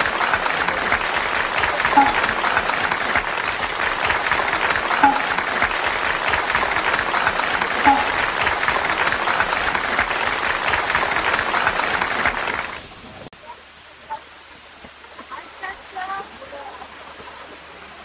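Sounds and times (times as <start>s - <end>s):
dense crackling hiss: 0.0s - 18.0s.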